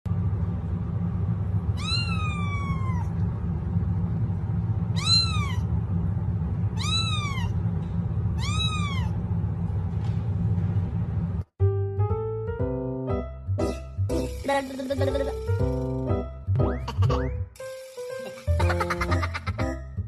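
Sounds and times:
low hum: 0.1s - 11.5s, 13.4s - 17.4s
kitten meowing: 1.8s - 3.1s, 5.0s - 5.7s, 6.8s - 7.6s, 8.4s - 9.2s.

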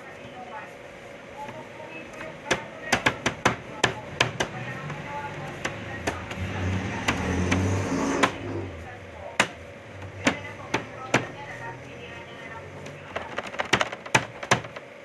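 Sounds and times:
dough knocking on worktable: 2.2s - 8.5s, 9.4s - 11.4s, 13.1s - 14.9s.

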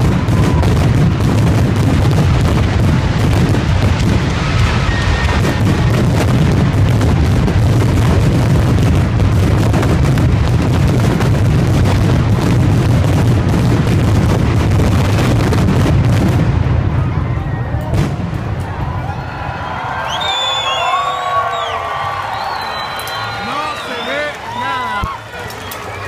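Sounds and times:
deep rumble: 0.0s - 19.0s
fireworks bangs and crackles: 0.0s - 26.0s.

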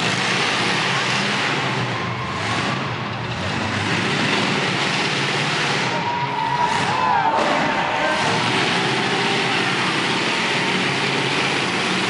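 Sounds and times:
engine running under throttle: 0.0s - 12.0s.

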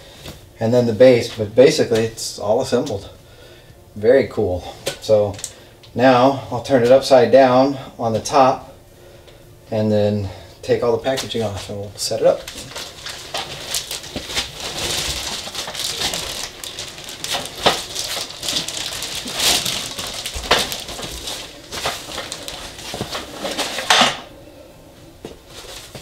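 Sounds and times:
plastic bag crinkling: 11.3s - 24.0s
foam padding handled: 12.4s - 24.3s.

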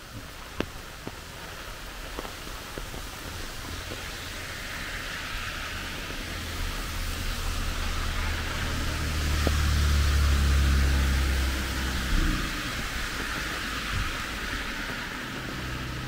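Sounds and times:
rain and running water: 0.0s - 16.0s
low rumble: 5.3s - 16.0s.

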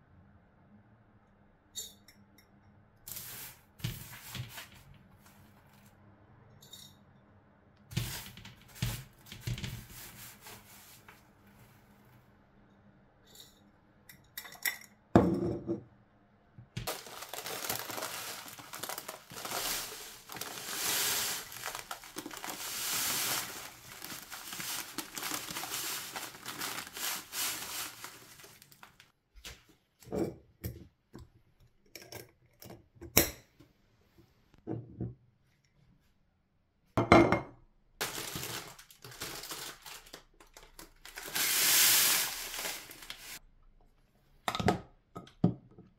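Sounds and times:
baking paper crinkling: 3.1s - 5.8s, 7.9s - 11.8s, 16.8s - 29.7s, 38.0s - 43.4s
granola pouring into glass jar: 16.9s - 29.0s, 40.8s - 43.4s.

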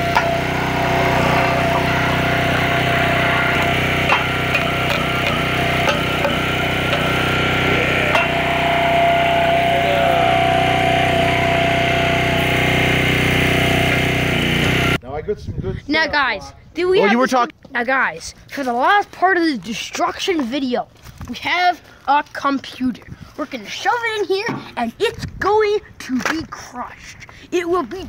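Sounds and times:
engine-driven machine running: 0.0s - 15.0s.

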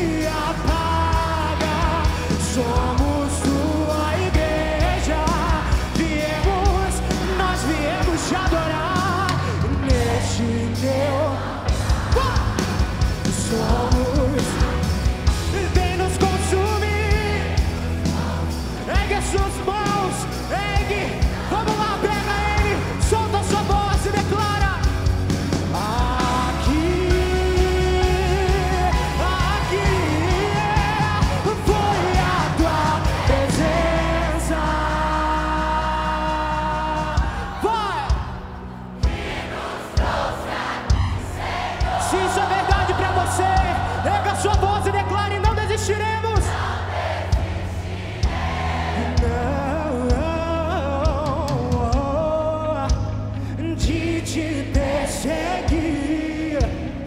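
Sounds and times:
person singing: 0.0s - 24.9s, 25.7s - 38.4s, 48.9s - 57.0s
worship band playing: 0.0s - 57.0s.

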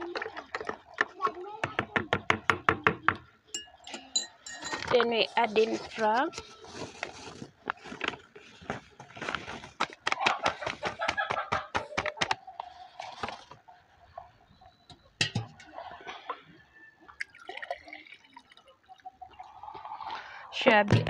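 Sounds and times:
paper bag crinkling: 5.8s - 10.0s
water pouring into glass: 12.4s - 20.6s.

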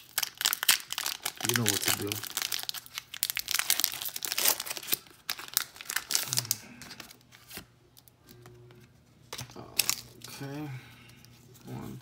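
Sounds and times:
foil wrapper crinkling and tearing: 0.0s - 8.1s, 9.4s - 10.4s.

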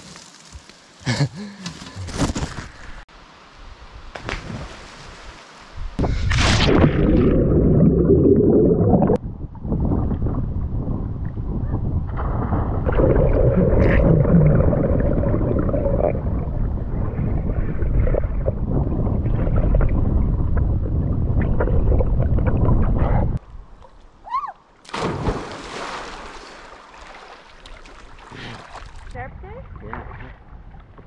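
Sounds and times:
muffled underwater rumble and bubbling: 6.8s - 23.4s
water splashing: 24.8s - 29.2s.

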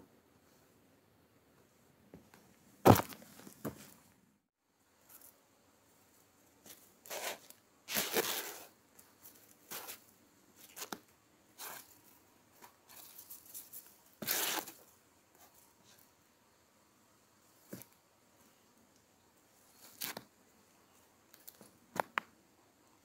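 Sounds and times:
sneakers scuffing on wood: 2.8s - 4.0s.

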